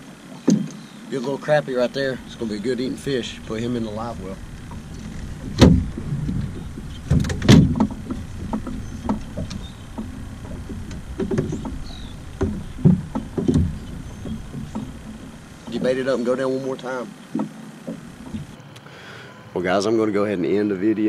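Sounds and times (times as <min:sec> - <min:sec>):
fishing gear knocking: 0:01.9 - 0:18.6
sharp knocks: 0:02.0 - 0:18.6.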